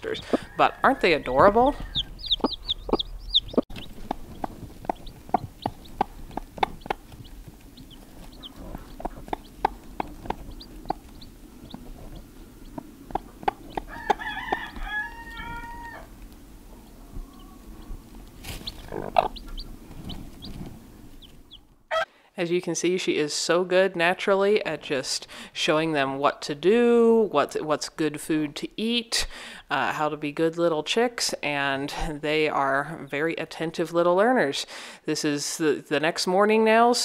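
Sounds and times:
chicks peeping: 0:00.0 - 0:22.0
hen clucking: 0:00.0 - 0:22.1.

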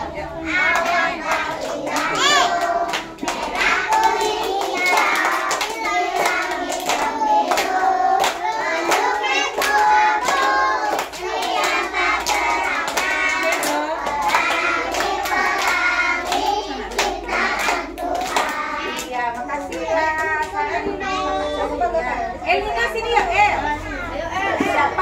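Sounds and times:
children singing: 0:00.0 - 0:19.0.

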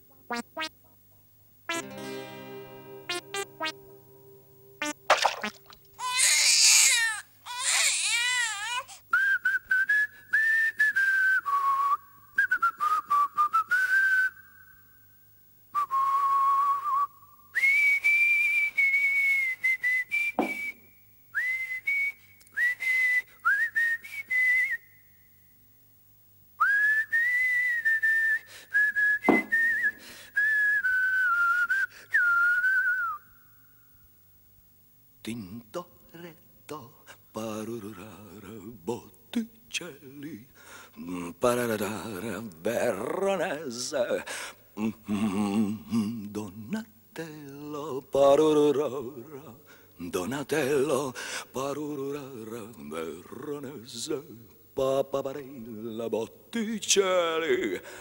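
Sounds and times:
person whistling a tune: 0:09.1 - 0:14.5, 0:15.8 - 0:20.8, 0:21.4 - 0:25.1, 0:26.6 - 0:33.3.

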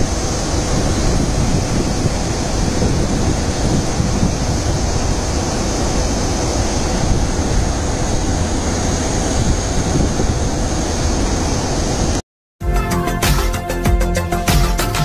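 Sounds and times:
water rushing over dam spillway: 0:00.0 - 0:11.8
wind buffeting microphone: 0:00.0 - 0:12.2.

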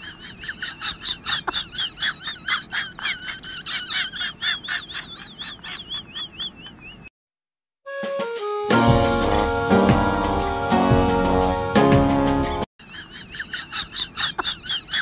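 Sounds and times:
birdlike chirping and warbling trill: 0:00.0 - 0:07.1, 0:12.8 - 0:15.0.

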